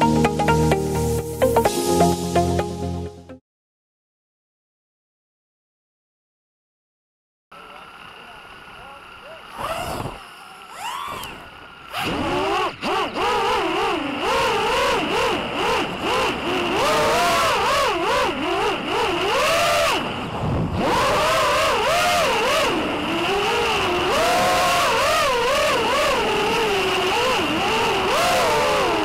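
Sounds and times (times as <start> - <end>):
quadcopter motors whining: 7.6 - 29.0.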